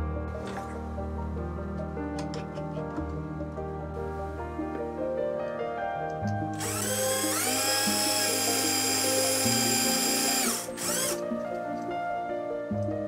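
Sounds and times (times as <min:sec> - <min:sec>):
small electric drill whining: 0:06.6 - 0:11.2.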